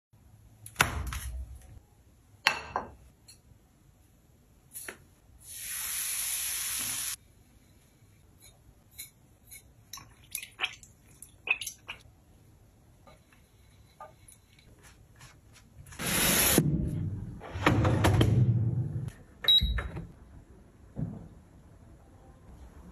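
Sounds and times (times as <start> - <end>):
hot oil sizzling: 5.4 - 7.2.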